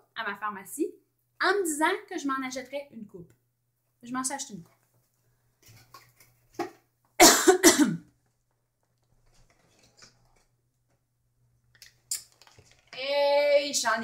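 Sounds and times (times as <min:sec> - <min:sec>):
woman coughing: 0:07.2 - 0:08.1.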